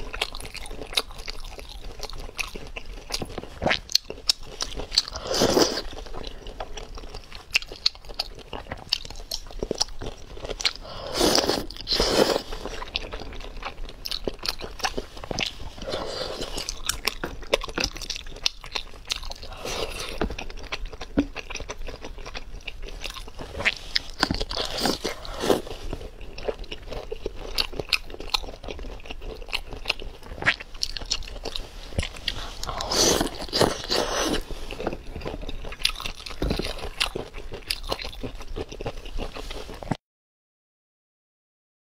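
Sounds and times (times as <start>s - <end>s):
crunchy chewing: 0.0s - 40.0s
slurping: 5.0s - 6.6s, 10.6s - 13.2s, 14.8s - 17.2s, 19.4s - 20.4s, 23.0s - 26.9s, 30.3s - 35.4s.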